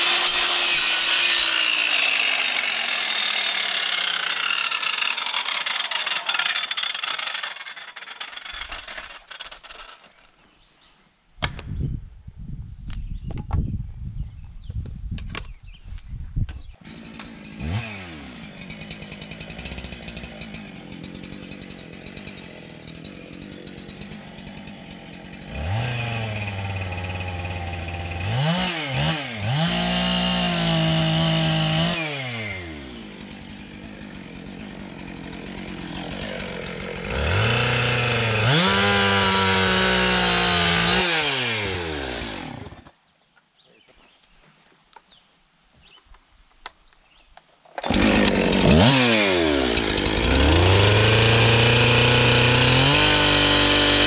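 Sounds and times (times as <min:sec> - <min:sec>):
two-stroke engine revving: 0:16.9 - 0:42.8, 0:47.8 - 0:54.0.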